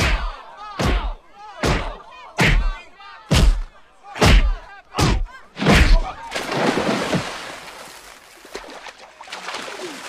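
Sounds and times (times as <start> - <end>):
body splashing into water: 6.3 - 10.0.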